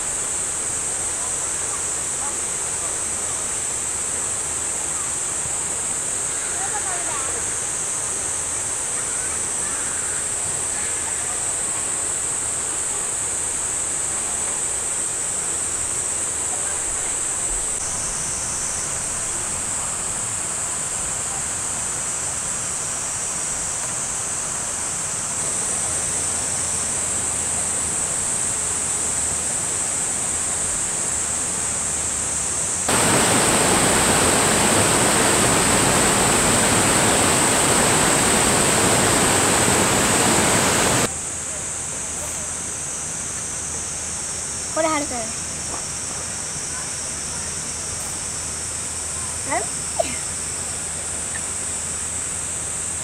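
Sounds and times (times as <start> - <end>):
high-pitched water hiss: 0.0 - 53.0
stream rushing over rocks: 32.8 - 41.1.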